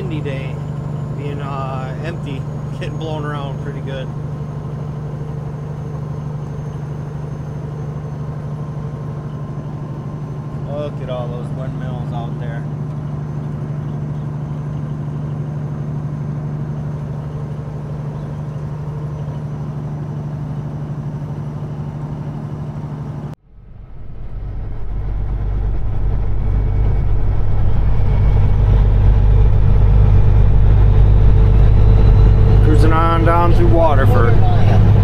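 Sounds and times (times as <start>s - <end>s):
truck engine and road drone: 0.0s - 35.0s.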